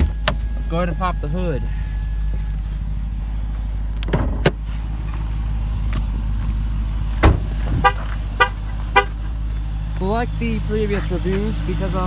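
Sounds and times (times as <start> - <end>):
car door shutting: 0.0 - 0.6, 4.0 - 4.6, 7.2 - 8.2
car engine idling: 0.0 - 12.0.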